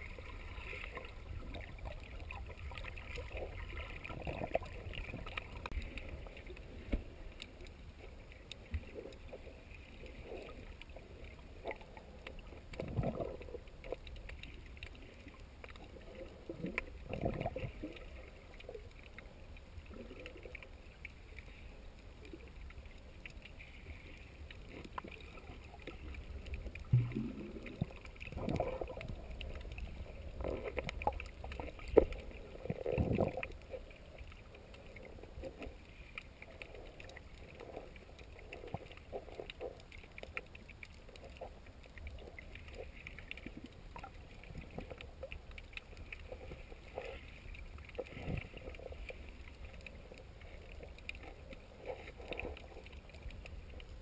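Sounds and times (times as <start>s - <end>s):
underwater rumble and hiss: 0.0s - 54.0s
water swishes: 0.0s - 54.0s.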